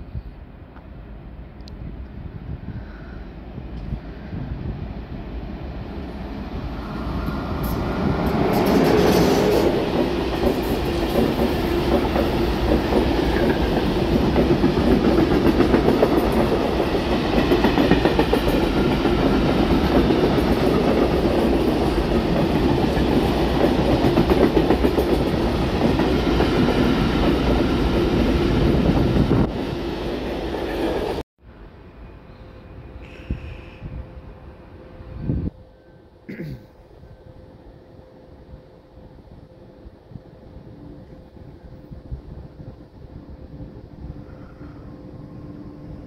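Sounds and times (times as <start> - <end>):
train wheels clattering on rails: 7.3 - 28.3.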